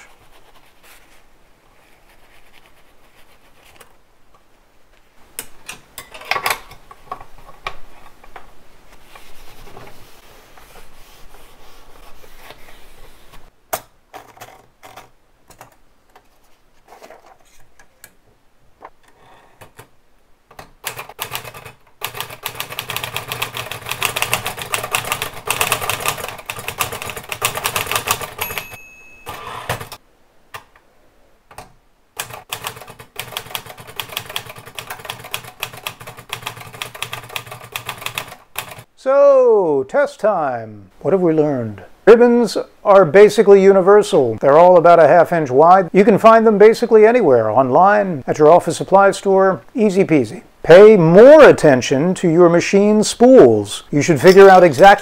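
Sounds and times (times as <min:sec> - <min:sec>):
rapid typewriter typing: 0:20.8 - 0:28.7, 0:29.3 - 0:30.0, 0:32.2 - 0:38.9
typewriter carriage bell ding: 0:28.0 - 0:30.0.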